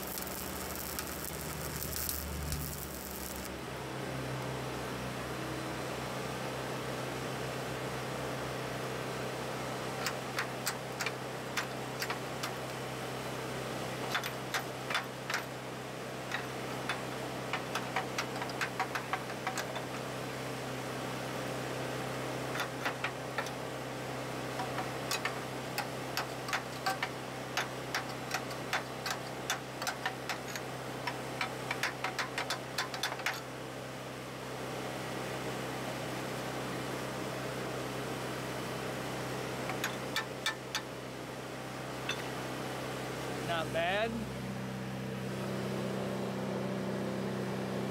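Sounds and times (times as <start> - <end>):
welding arc crackling and popping: 0.0 - 3.6, 9.9 - 13.0, 13.7 - 20.2, 22.4 - 33.5
engine droning: 0.0 - 33.5, 39.0 - 47.9.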